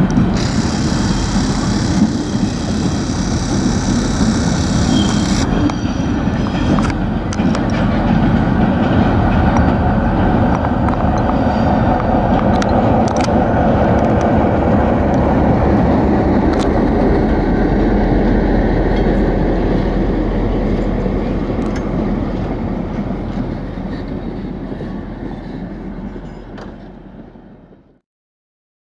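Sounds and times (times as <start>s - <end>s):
wheel clicks over rail joints: 0.0s - 11.3s
diesel locomotive passing: 0.0s - 28.0s.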